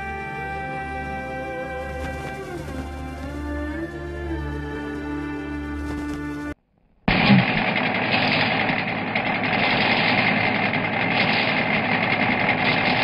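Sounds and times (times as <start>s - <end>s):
music: 0.0s - 6.6s
street sweeper running: 7.2s - 13.0s.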